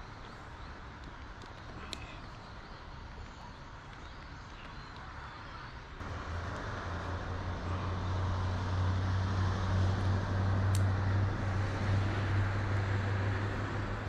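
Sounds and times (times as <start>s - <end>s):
road traffic: 0.0s - 14.0s
low engine hum: 6.0s - 14.0s.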